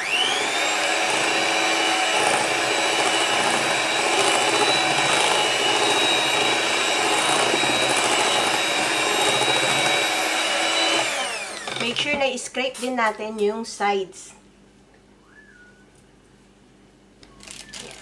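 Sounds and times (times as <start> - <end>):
electric hand mixer whining: 0.0 - 12.1.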